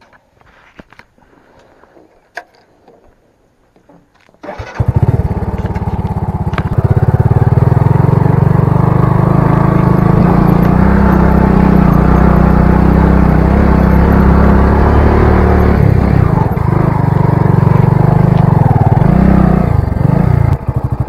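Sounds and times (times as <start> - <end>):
motorcycle engine starting and running: 4.4 - 21.0.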